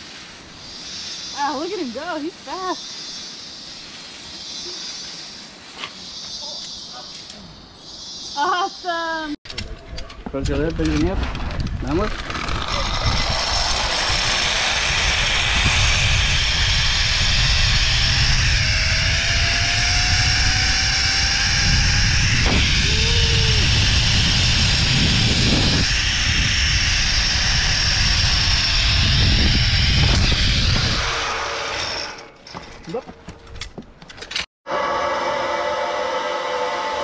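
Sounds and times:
rushing wind rumble: 9.6s - 31.8s
zipline pulleys whining on cable: 12.1s - 32.6s, 34.7s - 37.0s.

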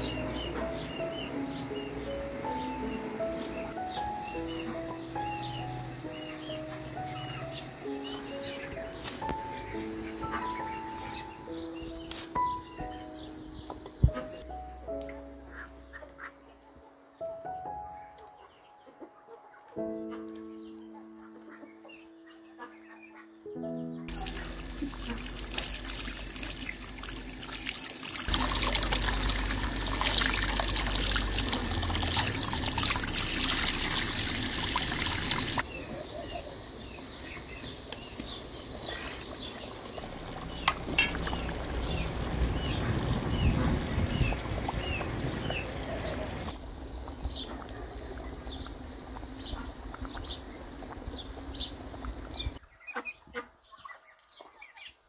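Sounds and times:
water trickling from outdoor tap: 0.0s - 8.5s, 24.1s - 35.7s, 36.5s - 52.6s
small birds chirping: 0.0s - 55.0s
stew bubbling at a boil: 24.1s - 52.6s.

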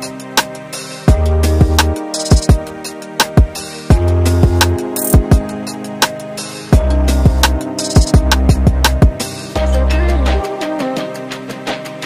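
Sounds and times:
deep held bass: 3.9s - 4.8s, 6.8s - 10.4s.

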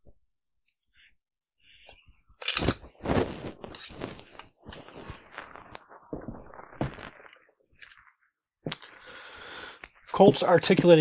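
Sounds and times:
rifle parts clicking and scraping: 2.4s - 2.9s, 3.7s - 4.0s, 7.3s - 8.0s.

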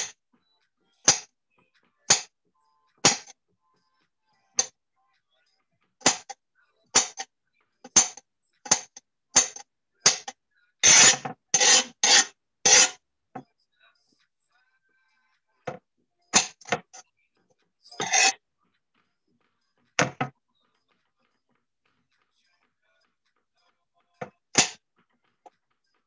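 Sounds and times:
knife chopping on cutting board: 3.0s - 3.3s, 6.0s - 6.4s, 7.9s - 13.0s, 20.0s - 20.3s, 24.6s - 24.8s.

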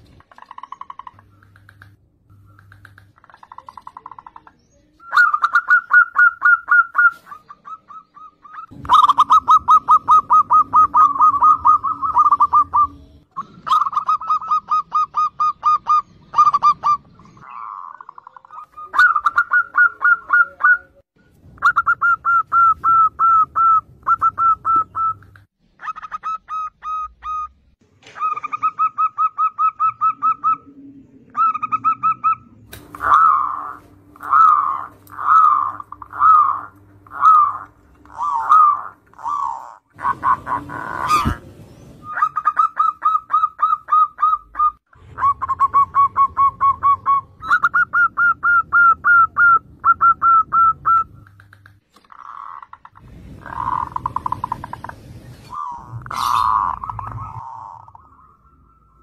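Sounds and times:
doves cooing: 0.0s - 21.0s, 21.6s - 59.0s.

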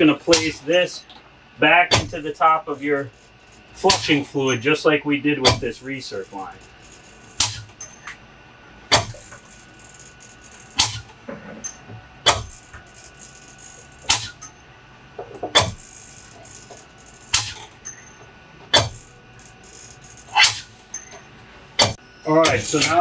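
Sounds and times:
pump clacking: 1.9s - 2.2s, 5.4s - 5.8s, 18.7s - 19.6s, 21.8s - 23.0s.

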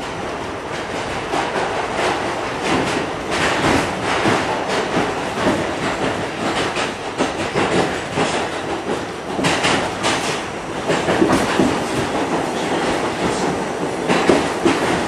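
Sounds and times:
subway train running in tunnel: 0.0s - 15.0s
wheels clattering on rails: 0.0s - 15.0s.

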